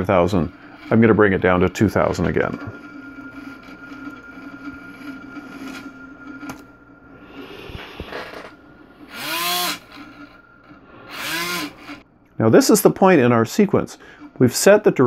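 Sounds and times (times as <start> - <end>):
small electric motor whining: 0.0 - 12.0.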